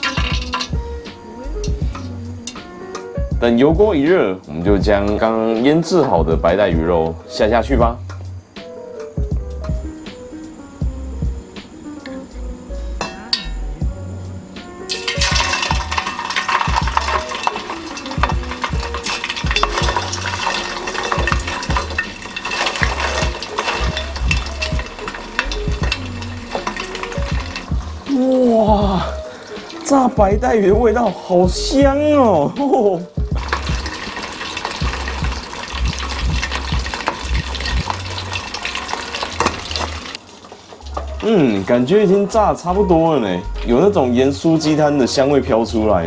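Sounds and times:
fish deep-frying in oil: 0.0 - 3.2, 14.6 - 31.8, 32.4 - 43.4.

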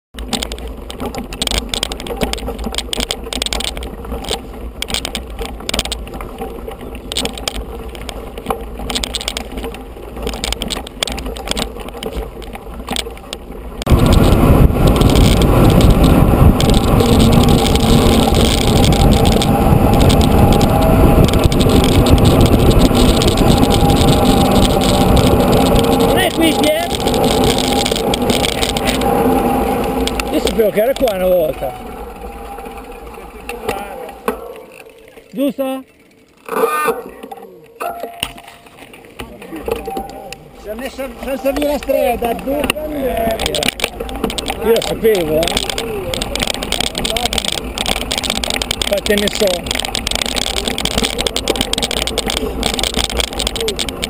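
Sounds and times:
wind noise on microphone: 0.2 - 31.1, 41.6 - 54.0
bike rattling over gravel: 0.2 - 54.0.

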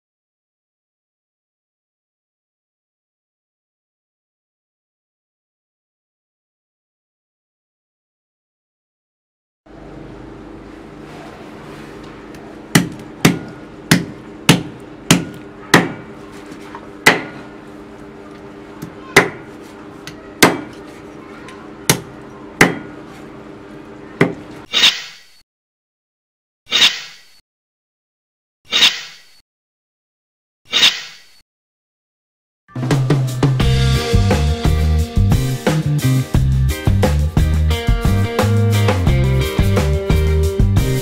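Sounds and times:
cleaver chopping on wooden block: 12.7 - 16.1, 17.0 - 17.4, 19.2 - 19.5, 20.4 - 20.8, 21.9 - 22.9.

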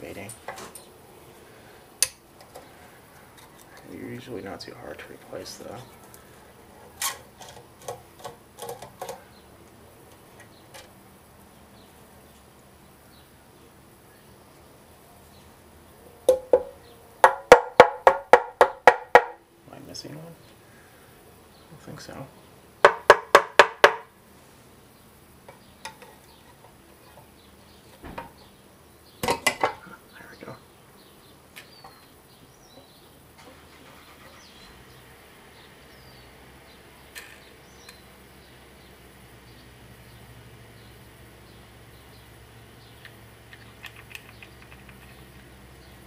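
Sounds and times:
small metal ticks and scraping: 2.0 - 4.0, 6.8 - 11.0, 25.4 - 27.3, 37.1 - 38.0, 43.0 - 45.5.

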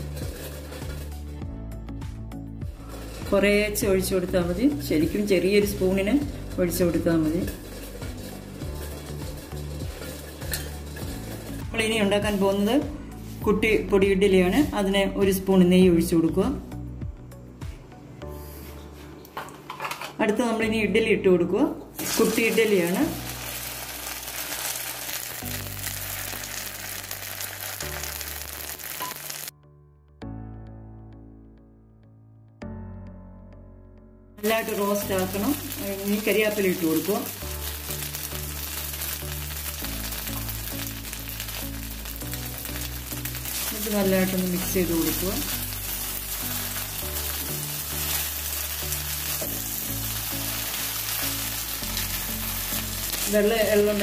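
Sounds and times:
ghee sizzling in a pan: 0.0 - 1.4, 2.8 - 13.4, 22.0 - 29.5, 34.4 - 54.0
background music with low notes: 0.0 - 54.0.

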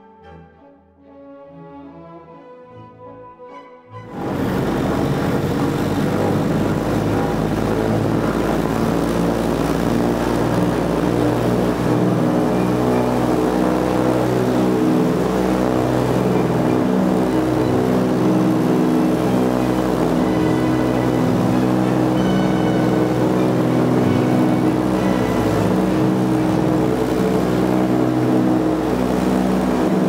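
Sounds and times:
propeller engines droning in cabin: 4.0 - 30.0.

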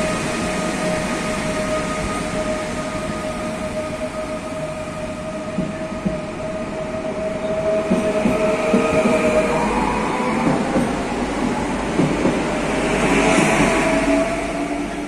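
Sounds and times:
electric train whine: 0.0 - 15.0
train wheels knocking rhythmically: 0.0 - 15.0.

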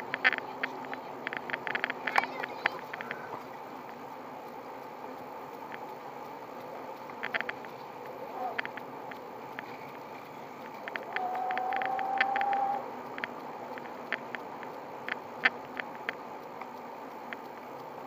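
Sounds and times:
bike clicks and rattles: 0.0 - 3.5, 7.1 - 16.7
electric motor humming: 0.0 - 18.0
steady motor whine: 0.0 - 18.0.

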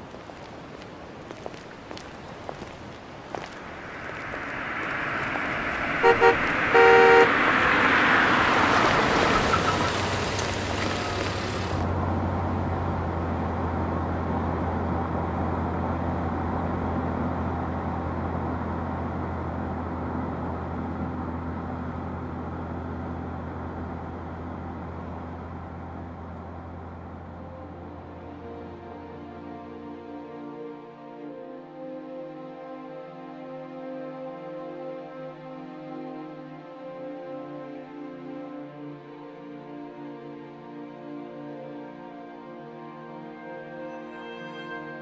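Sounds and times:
vehicle engine and road noise: 0.0 - 30.7
passing traffic: 0.0 - 45.0
car horn honking: 5.9 - 8.7.

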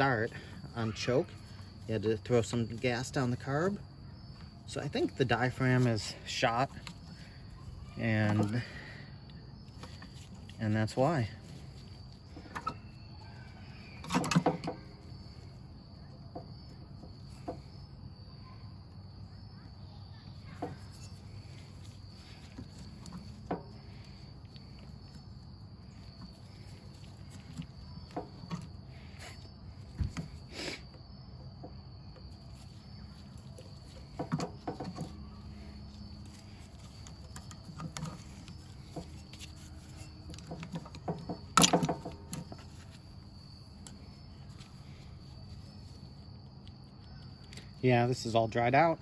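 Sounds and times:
hand tools clicking and tapping: 34.0 - 35.3, 36.2 - 42.9.

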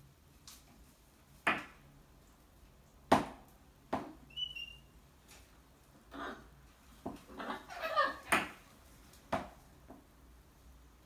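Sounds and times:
parrot chirp: 4.3 - 5.0, 7.3 - 8.6
parrots knocking and tapping: 8.2 - 8.6.

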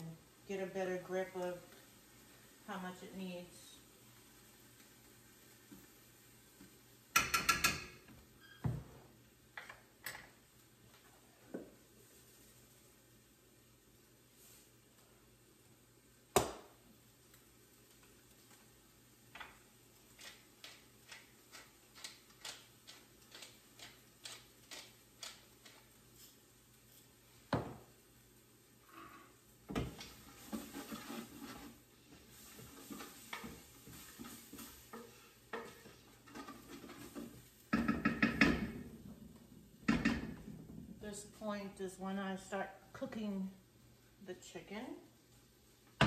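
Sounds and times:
spoon scraping in a metal pot: 30.0 - 38.4.

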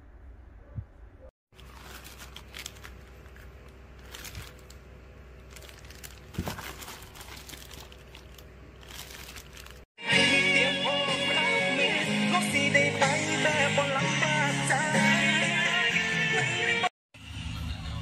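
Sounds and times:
plastic wrapping and cardboard crinkling: 1.5 - 9.9
loud music: 10.0 - 17.9.

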